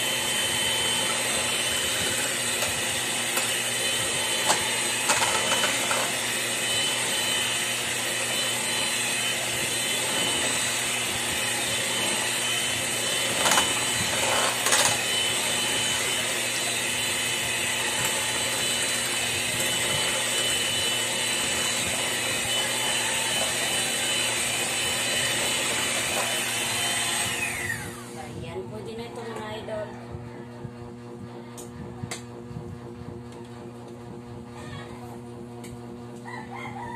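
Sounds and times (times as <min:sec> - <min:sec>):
electric hand mixer whining: 0:00.0 - 0:29.3.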